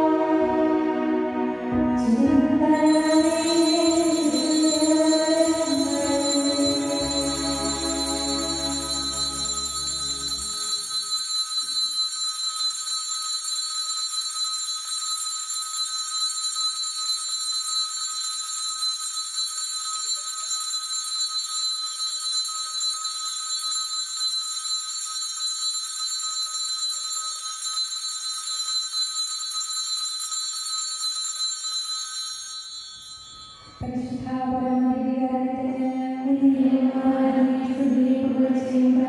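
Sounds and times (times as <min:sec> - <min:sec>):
bells jangling: 0:02.9 - 0:33.9.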